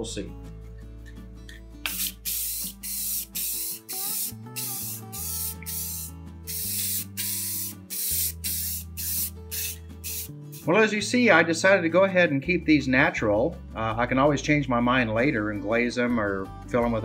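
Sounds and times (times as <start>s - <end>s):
background music: 0.0s - 17.0s
aerosol can spraying: 1.8s - 10.8s.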